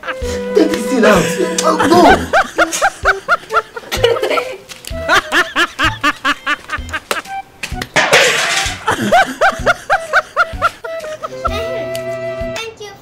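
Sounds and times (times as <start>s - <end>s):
person laughing: 1.1s - 7.3s, 8.8s - 11.8s.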